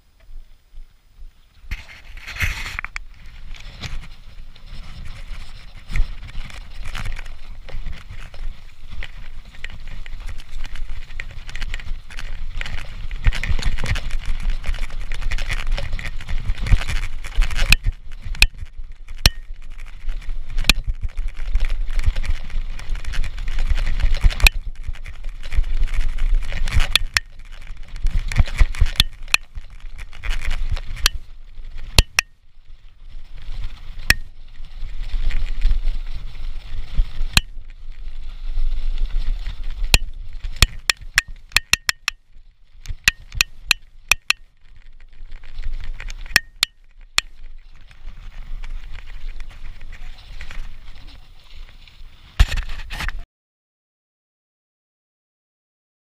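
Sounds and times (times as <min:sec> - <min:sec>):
bike tyre noise: 0:00.0 - 0:53.2
wind rumbling on microphone: 0:00.0 - 0:53.2
bike clicks and rattles: 0:01.7 - 0:53.2.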